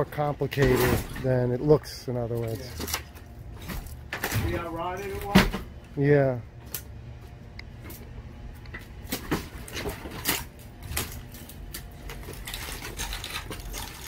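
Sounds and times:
wood cracking and breaking: 9.1 - 14.0.

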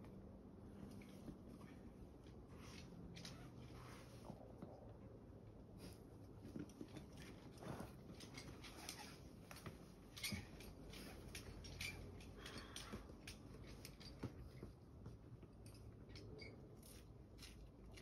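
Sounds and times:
climbing rope and gear rustling: 5.8 - 18.0.

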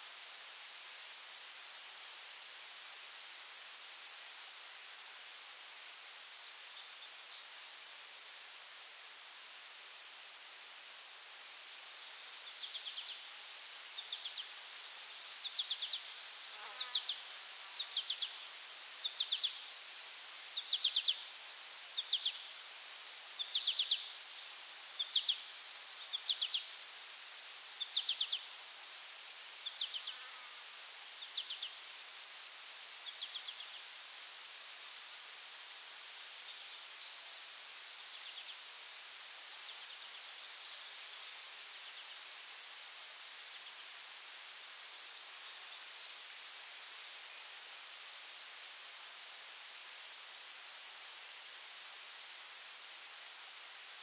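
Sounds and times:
insects buzzing trill: 3.2 - 51.6
short raspy insect chirp: 12.3 - 26.8, 27.7 - 28.6, 29.5 - 32.1, 33.0 - 34.1.

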